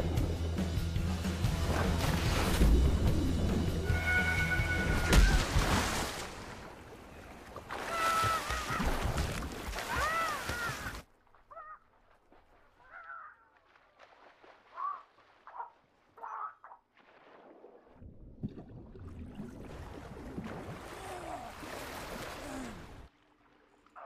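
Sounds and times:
water splashing and sloshing: 0.0 - 24.0.

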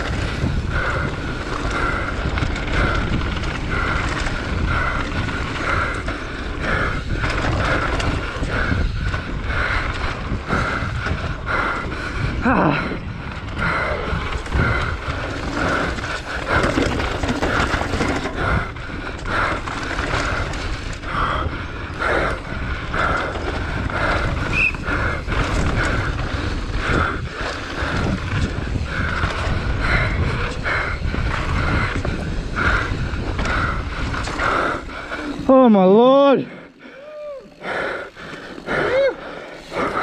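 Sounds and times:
wind rumble on microphone: 0.0 - 35.8
bike rattling and knocking: 0.0 - 40.0
tyres skidding on dirt: 13.4 - 21.1.

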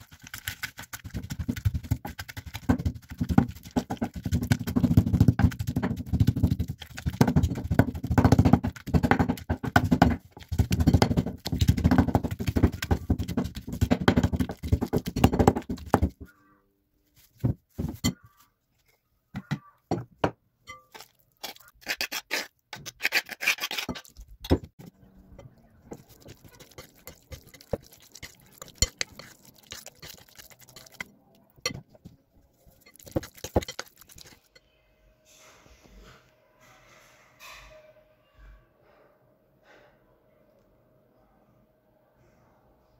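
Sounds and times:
pestle pounding in mortar: 0.0 - 16.2, 25.9 - 31.1, 32.9 - 34.4
metal spoon clinking glass bowl: 26.0 - 31.8, 32.8 - 34.6.

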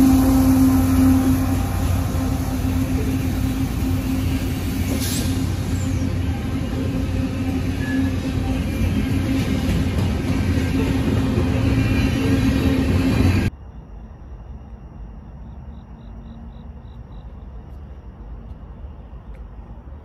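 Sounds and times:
freight train wheels on rails: 0.0 - 13.5.

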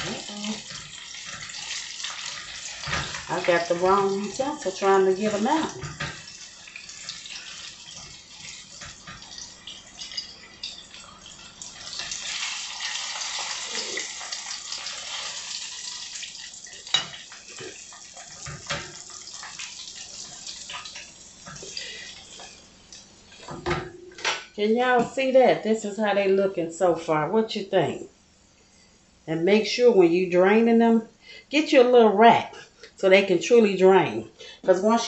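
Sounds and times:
fish sizzling in oil: 0.0 - 23.7.

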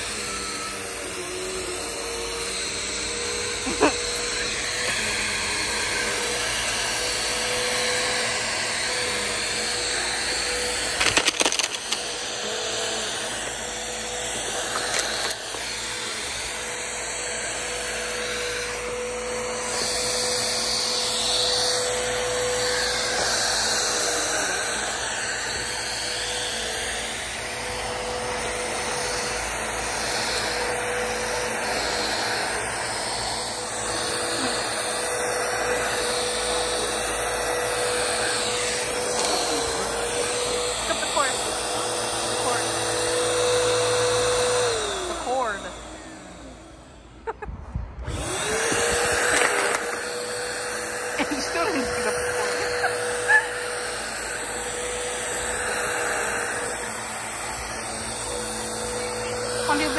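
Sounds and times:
vacuum cleaner running: 0.0 - 59.9
stones rattling in vacuum: 10.9 - 12.1.

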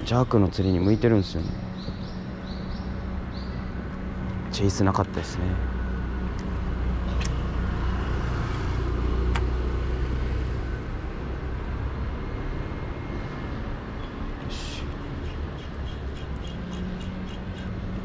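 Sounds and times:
road traffic rumble: 0.0 - 18.0.

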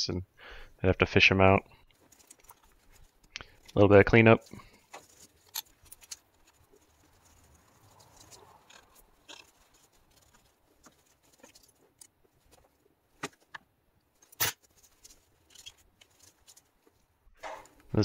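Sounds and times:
hand tools scraping metal: 2.1 - 12.2.

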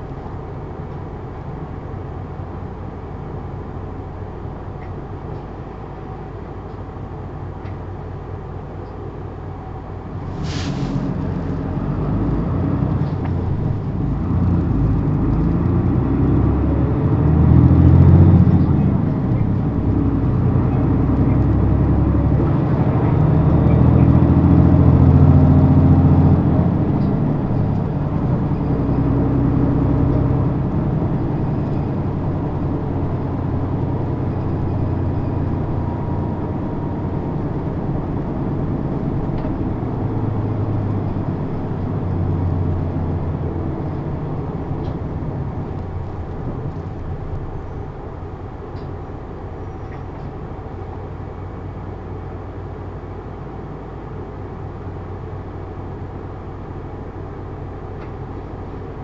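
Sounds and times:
bus diesel engine under load: 0.0 - 59.0.

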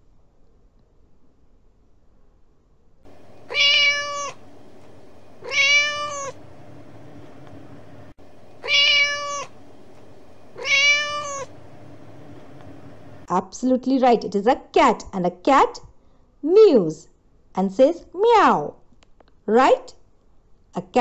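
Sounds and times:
faint recording hiss: 0.0 - 21.0
cat meowing: 3.2 - 8.0, 8.6 - 13.2.

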